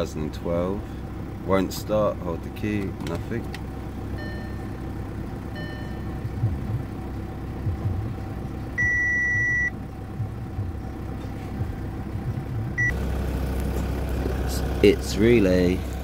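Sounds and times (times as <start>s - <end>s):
car warning chime beeps: 4.1s - 4.8s, 5.5s - 6.8s, 8.8s - 9.8s, 12.8s - 13.0s.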